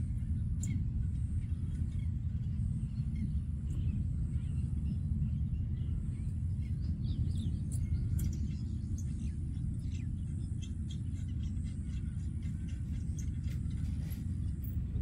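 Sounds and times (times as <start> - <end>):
birds chirping: 0.0 - 15.0
steady low rumble: 0.0 - 15.0.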